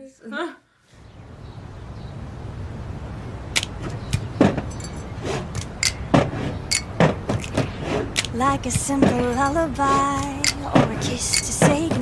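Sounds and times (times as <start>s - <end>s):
person singing: 8.3s - 12.0s.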